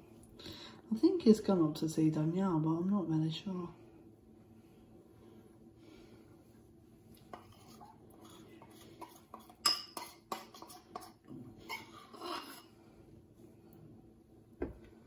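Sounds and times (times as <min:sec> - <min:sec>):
knife clinking on crockery: 0:09.0 - 0:11.1.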